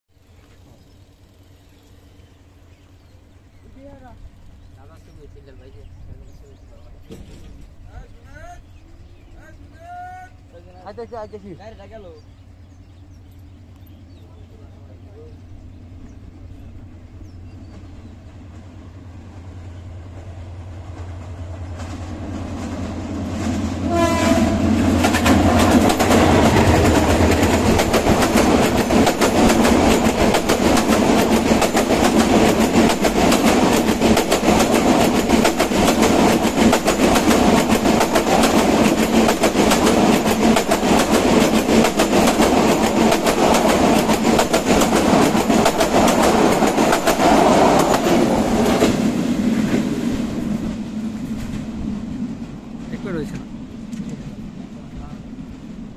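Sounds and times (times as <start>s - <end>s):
locomotive engine hum: 0.1s - 55.9s
train wheels clattering over rail joints: 6.9s - 7.9s, 24.8s - 49.0s.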